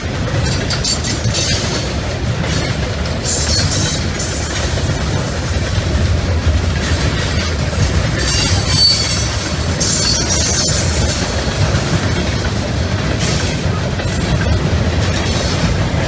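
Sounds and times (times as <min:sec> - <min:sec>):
train rumble with wheel clatter: 0:00.0 - 0:16.0
high-pitched wheel squeal: 0:08.2 - 0:10.9.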